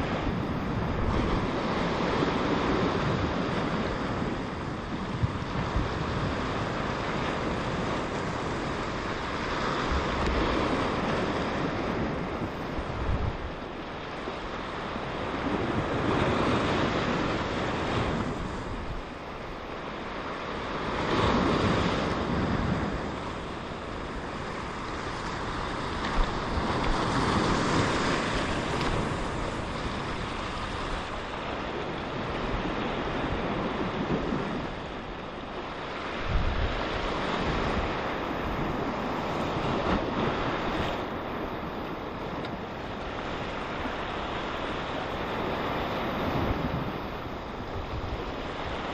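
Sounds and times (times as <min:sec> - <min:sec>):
surf washing over rocks: 0:00.0 - 0:48.9
wind rumbling on microphone: 0:00.0 - 0:48.9.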